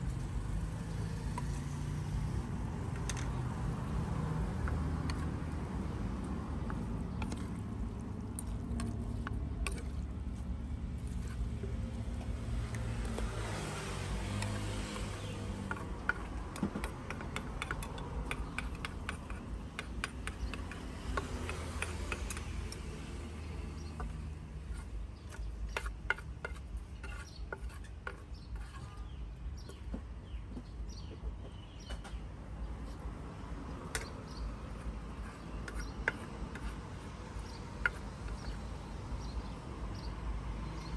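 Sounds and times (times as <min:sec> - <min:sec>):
pitched engine hum: 0:00.0 - 0:24.6
engine and traffic rumble: 0:00.0 - 0:40.9.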